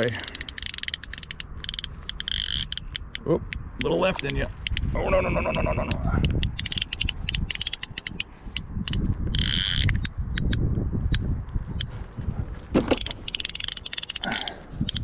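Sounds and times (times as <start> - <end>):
fishing reel clicking: 0.0 - 3.2, 6.3 - 8.3, 8.9 - 10.6, 13.0 - 15.0.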